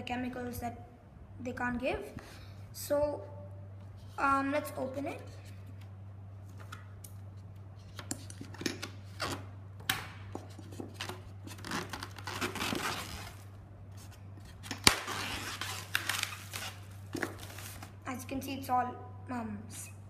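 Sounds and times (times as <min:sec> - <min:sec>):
plastic film tearing and crinkling: 0:11.0 - 0:13.5, 0:14.7 - 0:18.0
scissors snipping plastic film: 0:14.6 - 0:16.8.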